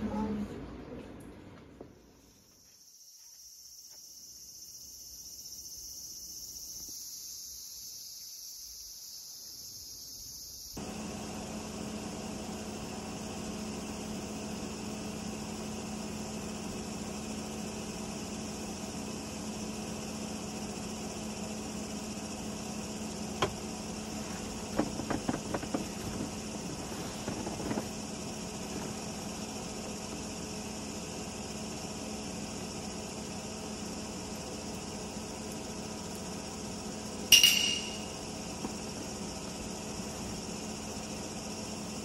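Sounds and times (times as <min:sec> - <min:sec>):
air conditioner whirring: 0:00.0 - 0:02.2, 0:10.8 - 0:42.0
insects chirring: 0:02.0 - 0:42.0
light knocks and clicks: 0:24.4 - 0:26.4.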